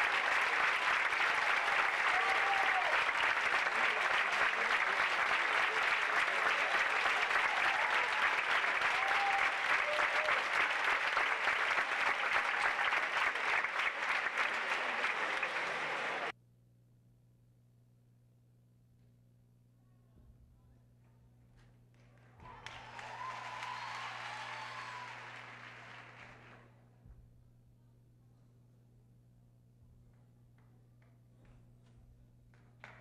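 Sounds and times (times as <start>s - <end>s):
audience applauding: 0.0s - 16.3s, 22.0s - 26.8s.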